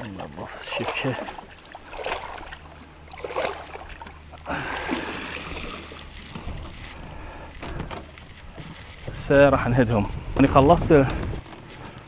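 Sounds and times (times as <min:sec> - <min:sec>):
water splashing and sloshing: 0:00.0 - 0:09.2.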